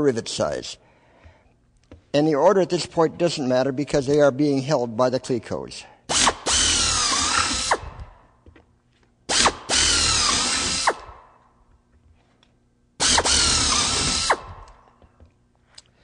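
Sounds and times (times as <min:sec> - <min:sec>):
hand drill cutting aluminum sheet: 0:06.1 - 0:08.1, 0:09.3 - 0:11.2, 0:13.0 - 0:14.8.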